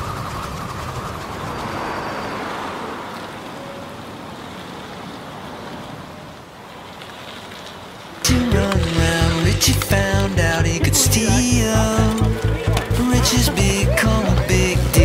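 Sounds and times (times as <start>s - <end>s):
low rumble: 8.3s - 15.0s.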